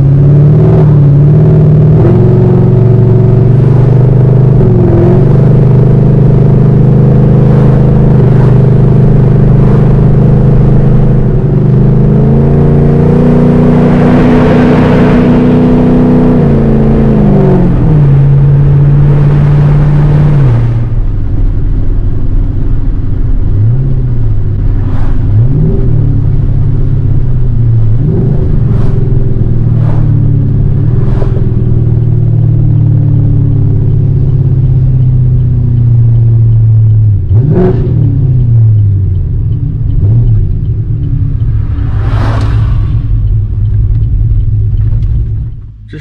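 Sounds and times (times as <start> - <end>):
deep car exhaust note: 0.0 - 46.0.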